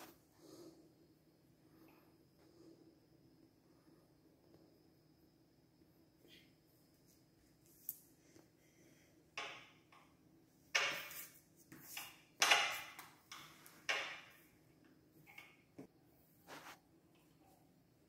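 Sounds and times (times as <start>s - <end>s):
hand brushing across paper: 16.4s - 16.8s.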